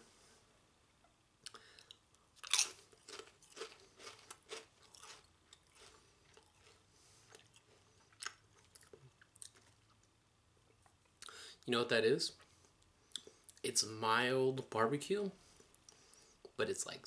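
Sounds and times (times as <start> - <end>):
potato chip crunching: 1.8 - 10.0.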